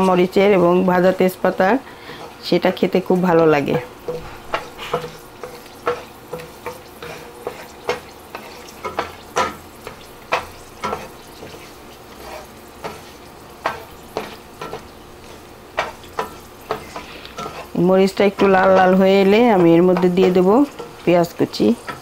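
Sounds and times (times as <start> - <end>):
chillies sizzling in oil: 0.0 - 22.0
spatula scraping and knocking wok: 0.0 - 22.0.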